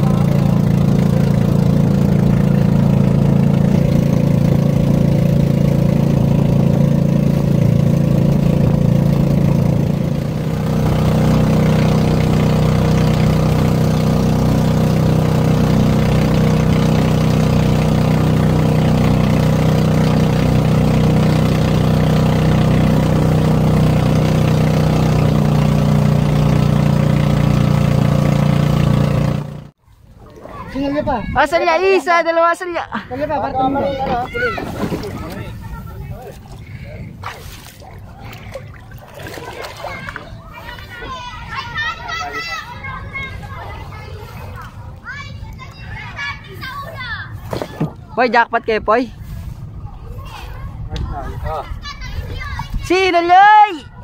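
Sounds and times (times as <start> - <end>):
water and wind hiss: 0.0 - 41.7
boat engine droning: 0.0 - 54.0.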